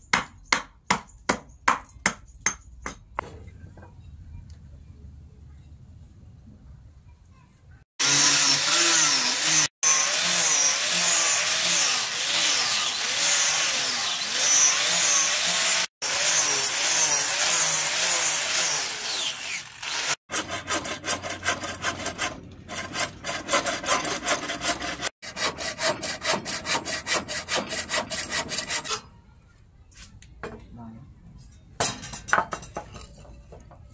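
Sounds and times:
angle grinder sanding wood: 8.0 - 28.9
hacksaw cutting wood: 8.0 - 29.0.

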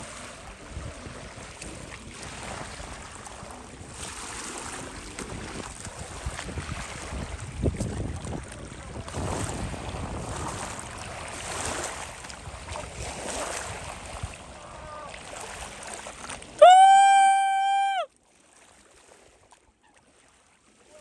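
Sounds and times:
wind buffeting microphone: 0.0 - 16.5
waves lapping: 0.0 - 21.0.

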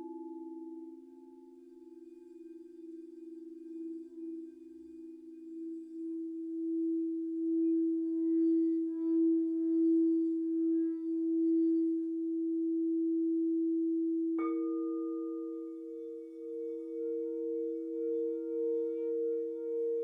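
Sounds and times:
singing bowl struck ringing: 0.0 - 2.4, 14.4 - 20.0
singing bowl rim tone: 0.0 - 20.0.

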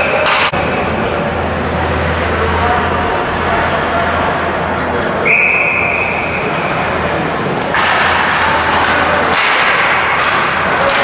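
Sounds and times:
skates and sticks scraping ice: 6.0 - 11.0.

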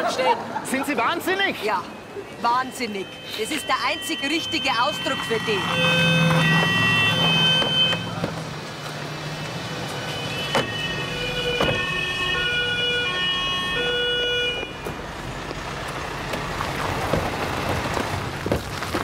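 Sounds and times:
emergency vehicle siren: 2.7 - 8.3, 9.3 - 15.0.

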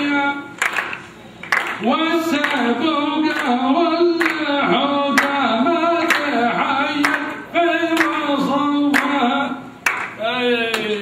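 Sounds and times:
sharp hand claps: 0.6 - 2.7, 3.3 - 3.6, 4.2 - 4.5, 7.0 - 7.3, 8.9 - 9.2, 9.8 - 11.0
person singing unaccompanied: 1.8 - 11.0.

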